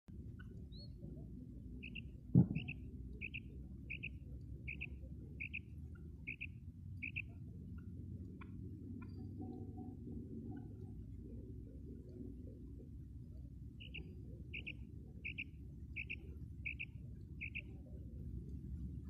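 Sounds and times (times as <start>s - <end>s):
steady low rumble: 0.1s - 19.0s
quail calling: 1.8s - 4.1s, 4.7s - 5.6s, 6.3s - 7.4s, 13.8s - 17.7s
loud thump: 2.3s - 2.6s.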